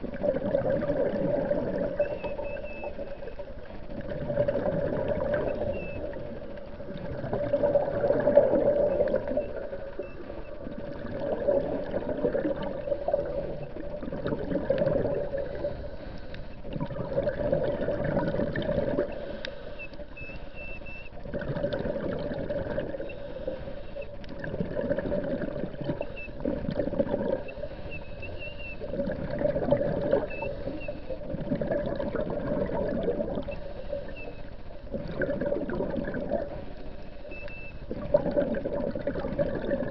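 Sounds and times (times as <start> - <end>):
muffled underwater water noise: 0.0 - 39.9
faint high whistles: 2.0 - 3.1, 5.5 - 6.1, 19.7 - 21.1, 27.8 - 28.8, 30.2 - 31.2, 33.5 - 34.5, 37.2 - 37.9.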